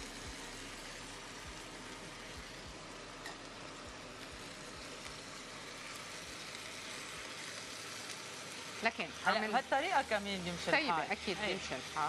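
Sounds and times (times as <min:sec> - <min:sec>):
meat sizzling in a frying pan: 0:00.0 - 0:12.0.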